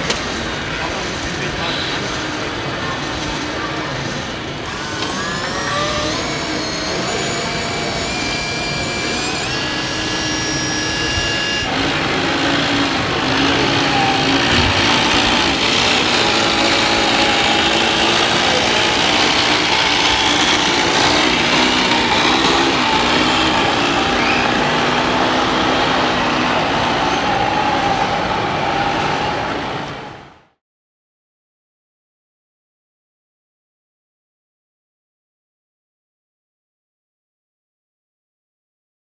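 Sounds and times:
toy truck motor whining: 0:00.0 - 0:30.1.

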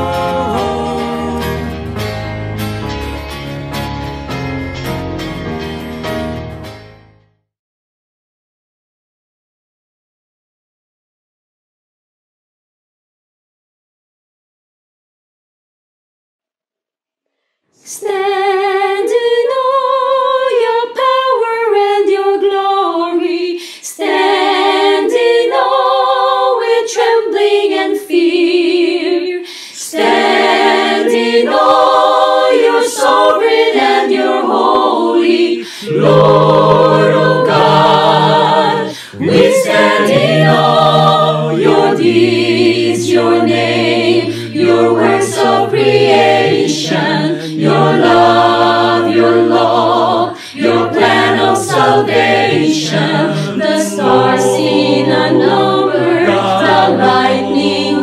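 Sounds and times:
men singing harmony: 0:00.0 - 0:01.8, 0:29.9 - 0:58.0
women singing: 0:17.8 - 0:58.0.

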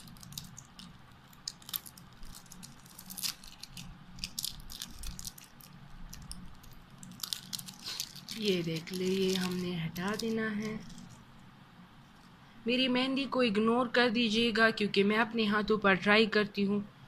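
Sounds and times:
plastic wrapping crinkling: 0:00.0 - 0:11.4.

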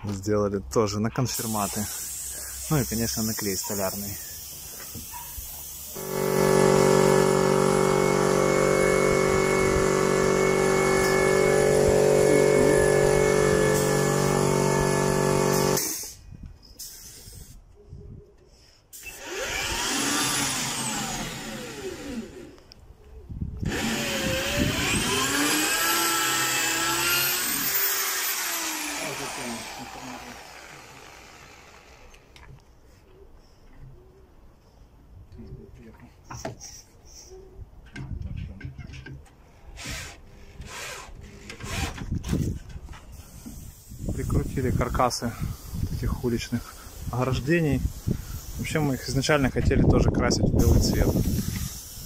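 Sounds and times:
power tool motor running: 0:06.0 - 0:16.0, 0:19.0 - 0:22.6, 0:23.6 - 0:32.3
drill whirring: 0:06.0 - 0:16.1, 0:19.0 - 0:22.6, 0:23.6 - 0:32.3, 0:39.8 - 0:42.0.

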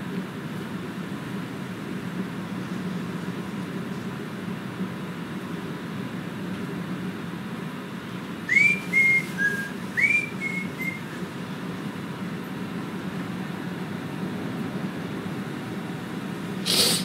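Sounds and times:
fan blowing with rushing hum: 0:00.0 - 0:17.0
person whistling: 0:08.5 - 0:11.1.

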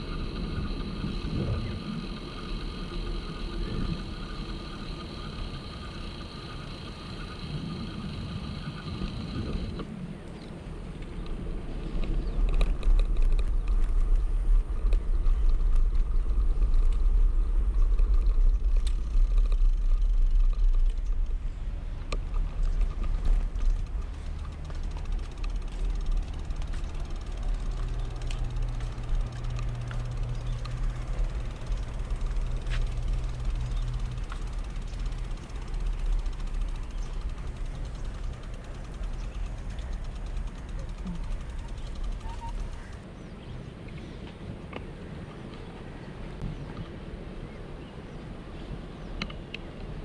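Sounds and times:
road noise: 0:00.0 - 0:50.0
steady low hum: 0:00.0 - 0:50.0
wind rumbling on microphone: 0:00.0 - 0:50.0.

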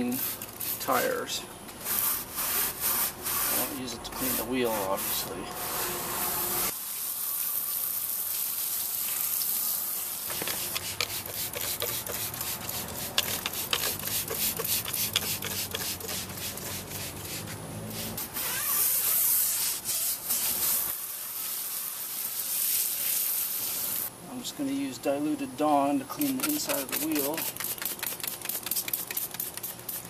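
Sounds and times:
brush scrubbing wet rubber tire: 0:00.0 - 0:01.3, 0:01.9 - 0:05.4, 0:10.3 - 0:24.1, 0:25.9 - 0:30.0
spray bottle squirts: 0:10.2 - 0:24.1, 0:26.2 - 0:30.0.

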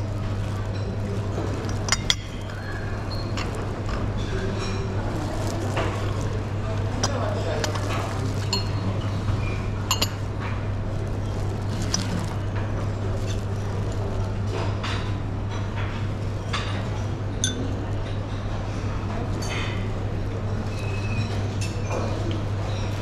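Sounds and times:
porcelain dishes clinking: 0:00.8 - 0:05.0, 0:05.6 - 0:10.4, 0:17.4 - 0:18.4.

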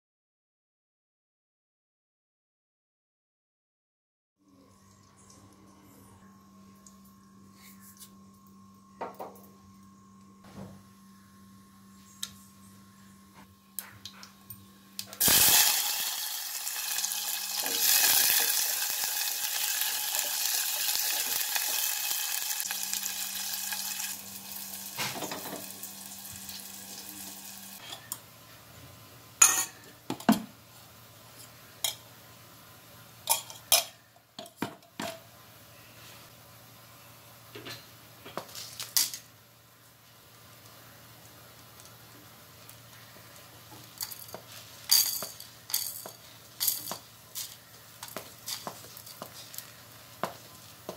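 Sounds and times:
hot oil sizzling: 0:15.2 - 0:27.8, 0:40.2 - 0:50.9.

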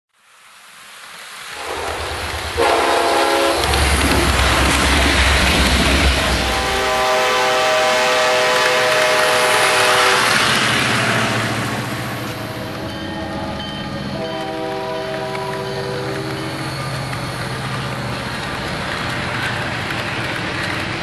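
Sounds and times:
train horn blasts: 0:01.6 - 0:04.9, 0:06.2 - 0:16.9
loud rushing rumble: 0:03.5 - 0:08.0.

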